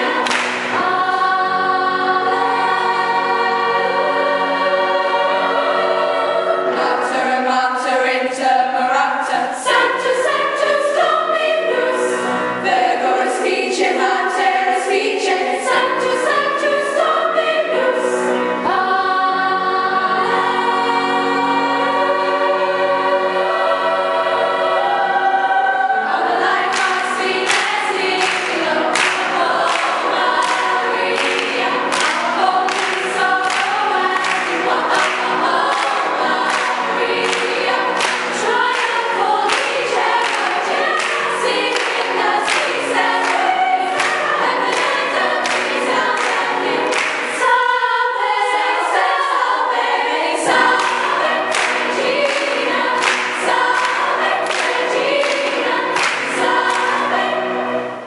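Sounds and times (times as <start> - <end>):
girls' choir singing a hymn: 0.0 - 58.0
handclaps on the beat: 0.1 - 0.9, 26.7 - 47.4, 50.6 - 57.0.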